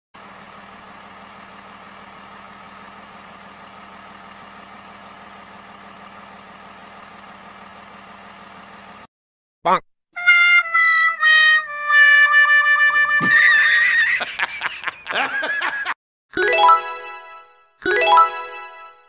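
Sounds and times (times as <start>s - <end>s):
car engine idling: 0.2s - 9.1s.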